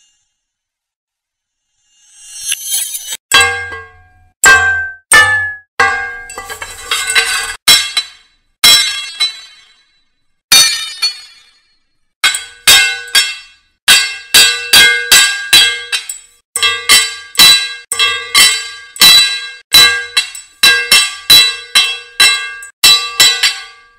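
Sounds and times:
sword blades clashing: 2.3 - 9.8, 12.2 - 23.9.

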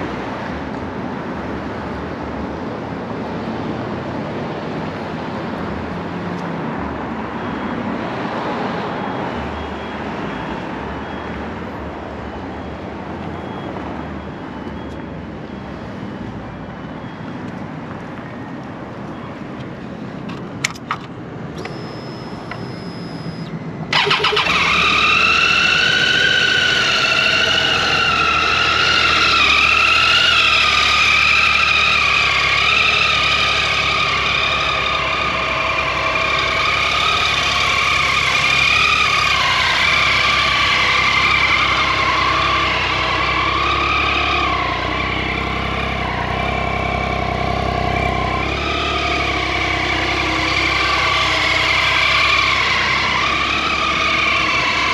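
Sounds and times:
ignition clicks: 20.3 - 24.8
thin high whine: 21.6 - 23.6.

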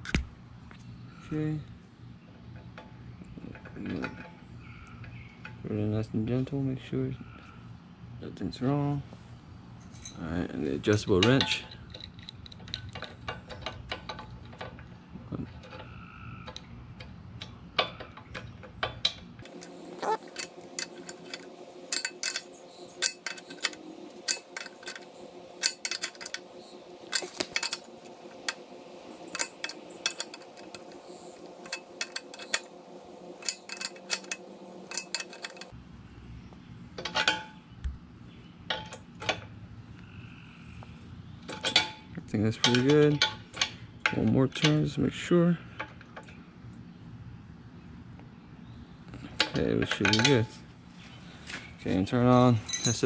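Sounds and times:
wrench clinking against metal valve: 20.1 - 26.5, 29.3 - 32.7, 33.4 - 35.7, 42.6 - 43.7, 49.4 - 50.5, 52.3 - 53.0.

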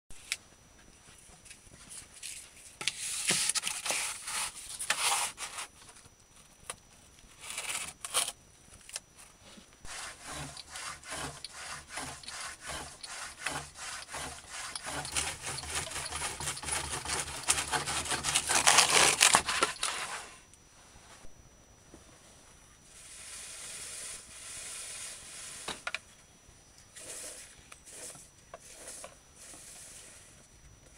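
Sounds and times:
hand saw cutting log: 9.9 - 20.2.

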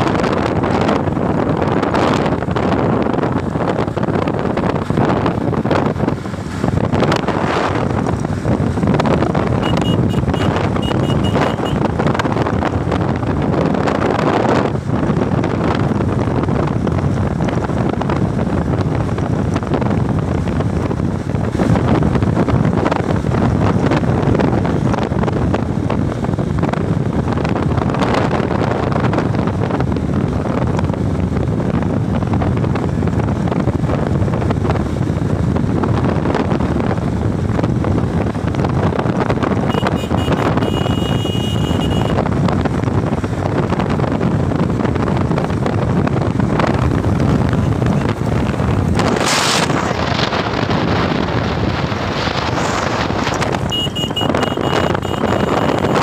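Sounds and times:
motorcycle engine: 0.0 - 14.0, 36.5 - 56.0
wind rushing over microphone: 0.0 - 56.0.

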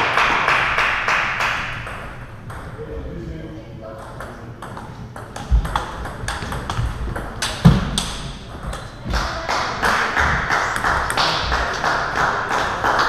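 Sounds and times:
table tennis balls clicking: 4.0 - 9.2.

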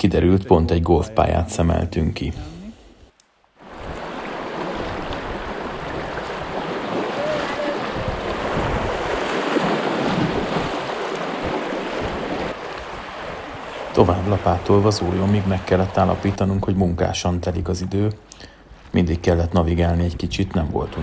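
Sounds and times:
river current rushing and splashing: 3.4 - 16.6
wind buffeting microphone: 3.6 - 16.9.

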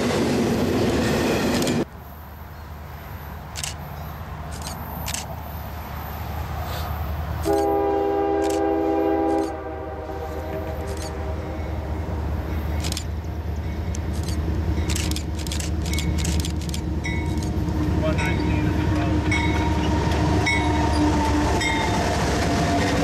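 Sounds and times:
diesel locomotives rumbling: 0.0 - 23.0
train air horn blast: 6.7 - 12.1, 18.8 - 23.0.

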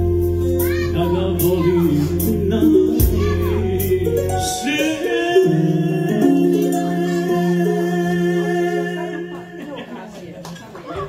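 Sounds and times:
deep bass: 0.0 - 4.6.

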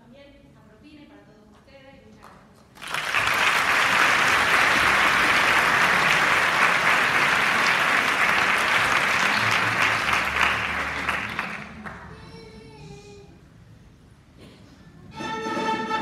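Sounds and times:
audience applauding: 2.8 - 12.2.

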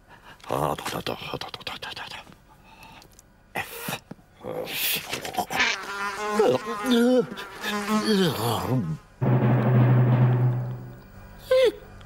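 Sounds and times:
cartoon fly buzzing: 5.6 - 8.4.

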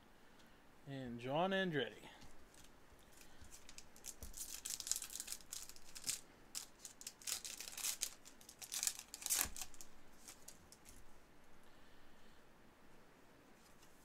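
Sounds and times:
cards scraping and crinkling: 2.5 - 11.0.

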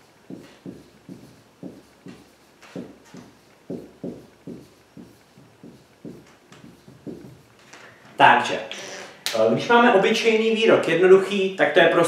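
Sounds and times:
marker writing on whiteboard: 0.0 - 7.6.

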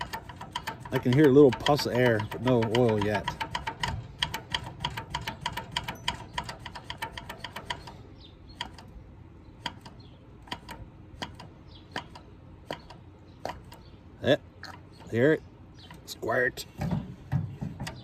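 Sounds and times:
hand pump clicking: 0.0 - 9.0, 9.6 - 13.9.

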